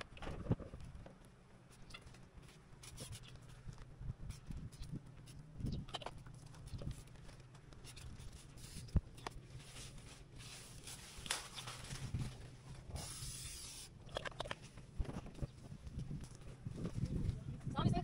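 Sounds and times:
spray bottle hiss: 12.9 - 14.0.

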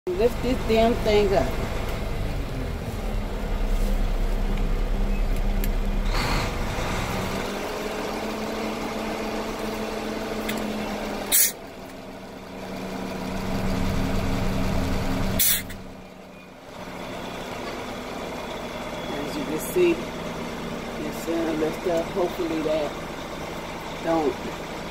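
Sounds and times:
diesel engine running: 0.0 - 24.9
sharp air hisses: 11.3 - 11.6, 15.4 - 15.8.

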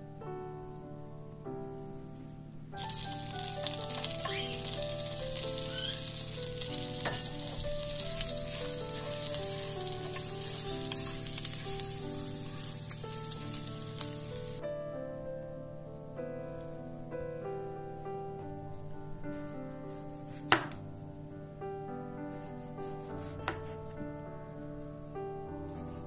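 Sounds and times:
soft piano music: 0.0 - 26.0
garlic sizzling in a frying pan: 2.8 - 14.6
spatula stirring: 2.8 - 14.6.

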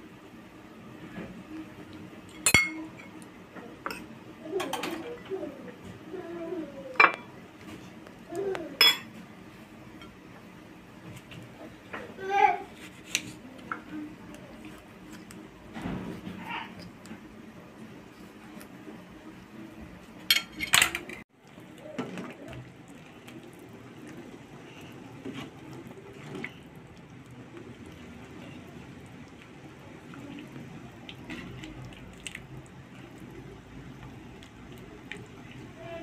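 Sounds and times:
metal utensil clinking on bowl: 2.4 - 2.9, 8.8 - 9.1
faint liquid sounds: 11.0 - 20.2, 21.3 - 36.0.

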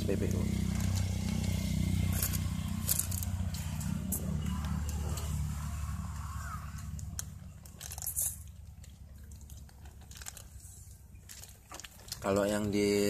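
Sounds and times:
crunching and chewing: 0.6 - 12.8
plastic and paper crinkling: 6.7 - 13.0.

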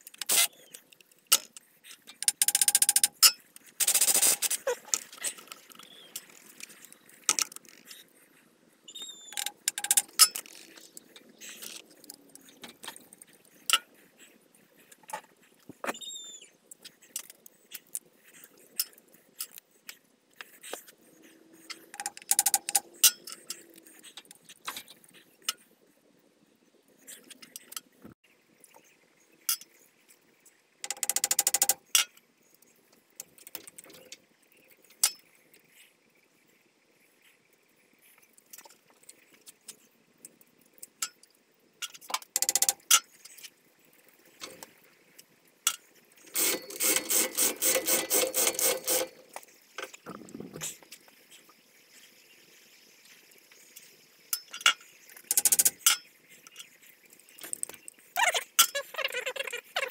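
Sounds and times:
metal tools clinking: 9.3 - 10.7, 45.7 - 49.2.

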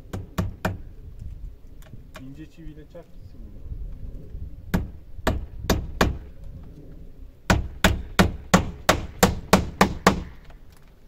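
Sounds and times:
hammer driving nails into wood: 0.1 - 0.8, 7.5 - 10.5.

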